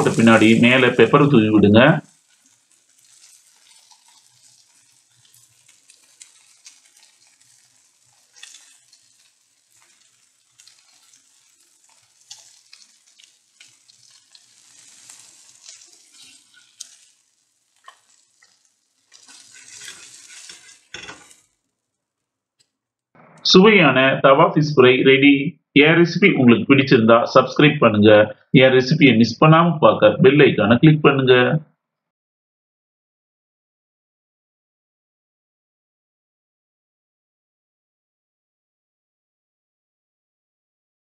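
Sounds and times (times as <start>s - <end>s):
fish sizzling in oil: 0.0s - 1.1s, 2.0s - 22.0s
oil popping: 2.1s - 21.5s
metal spatula scraping griddle: 2.2s - 17.2s, 17.8s - 21.5s.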